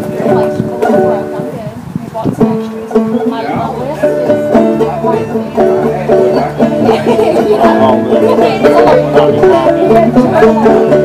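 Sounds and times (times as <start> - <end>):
banjo picking: 0.0 - 11.0
plucked upright bass: 0.0 - 11.0.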